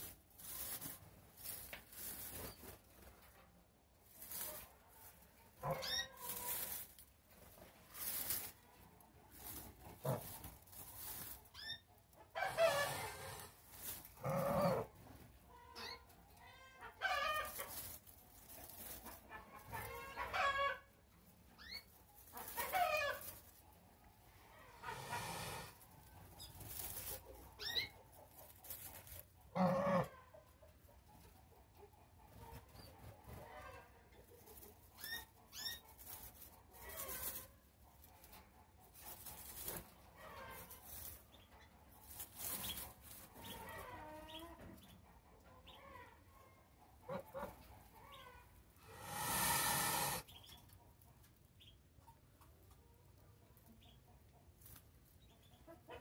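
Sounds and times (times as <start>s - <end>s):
goose calling: 48.8s - 50.2s.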